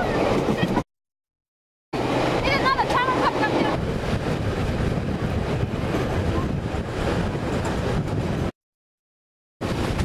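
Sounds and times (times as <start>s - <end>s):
train rumbling on track: 0.0s - 0.9s, 2.0s - 8.6s, 9.6s - 10.0s
wind on microphone: 2.0s - 8.6s, 9.6s - 10.0s.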